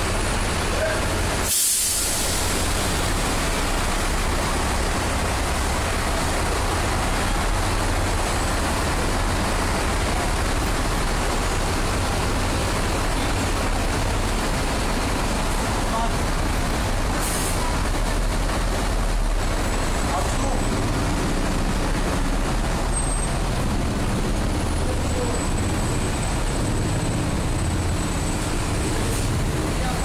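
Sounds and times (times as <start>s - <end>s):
low rumble of engines and machinery: 0.0s - 30.0s
short hiss: 1.4s - 2.6s, 17.2s - 17.6s.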